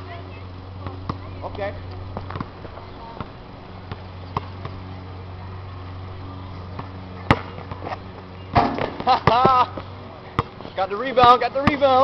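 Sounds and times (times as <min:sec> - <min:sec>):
steady low hum: 0:00.0 - 0:12.0
ball striking with loud bang: 0:08.5 - 0:09.5
basketball knocks: 0:08.5 - 0:09.6.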